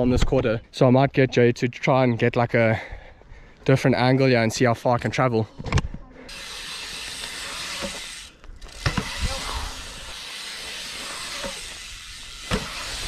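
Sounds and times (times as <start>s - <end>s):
bike tyres rolling on concrete: 6.3s - 13.0s.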